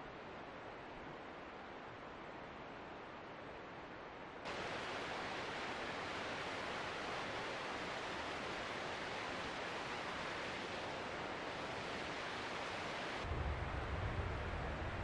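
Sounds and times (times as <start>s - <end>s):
creek rushing over rocks: 4.5s - 13.4s
low rumble: 13.3s - 15.0s.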